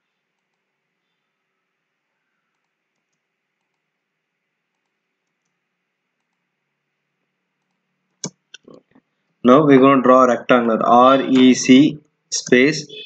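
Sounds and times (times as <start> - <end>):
faint computer mouse clicks: 2.5 - 3.9.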